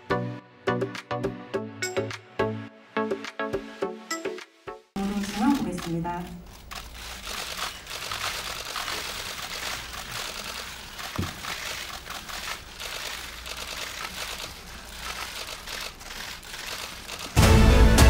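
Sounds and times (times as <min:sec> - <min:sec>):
camera shutters clicking: 0:05.1 - 0:17.4.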